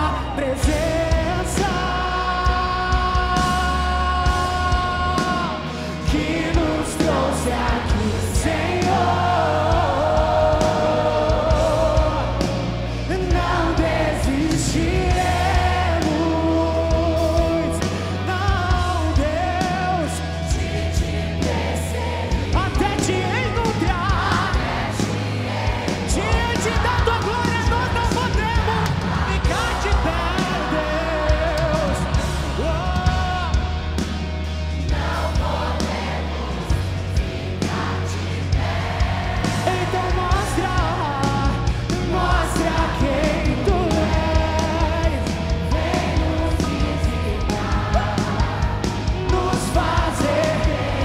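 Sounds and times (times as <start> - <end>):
person singing: 0.0 - 21.6, 25.9 - 34.0, 39.5 - 51.0
sustained bass notes: 0.0 - 51.0.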